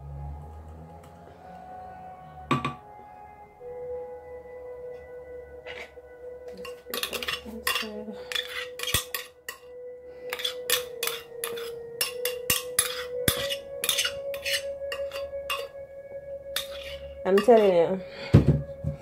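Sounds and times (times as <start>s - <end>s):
metal spoon scraping glass jar: 6.6s - 9.7s, 10.3s - 15.8s, 16.5s - 17.8s.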